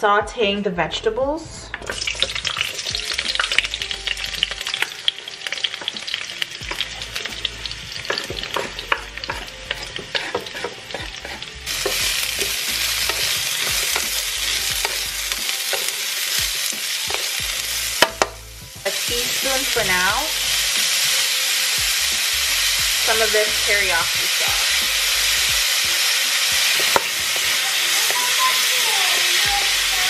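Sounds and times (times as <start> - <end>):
vegetables sizzling in oil: 1.5 - 30.0
spatula scraping a wok: 5.8 - 18.2, 26.5 - 30.0.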